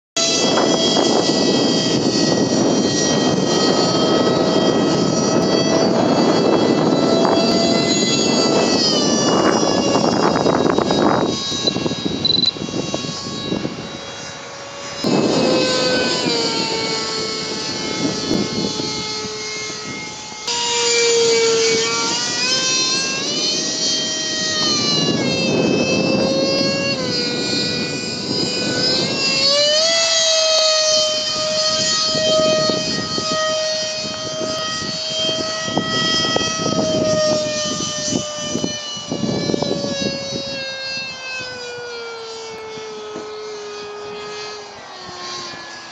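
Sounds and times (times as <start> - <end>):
model jet fan whining: 0.2 - 45.9.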